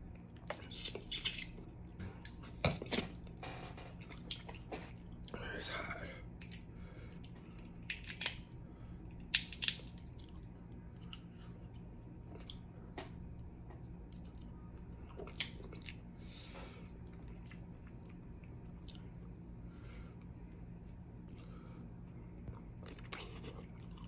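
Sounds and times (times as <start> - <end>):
shells cracking: 9.3 - 10.0
chewing: 9.6 - 12.6, 13.8 - 16.0, 16.8 - 19.3, 22.4 - 24.0.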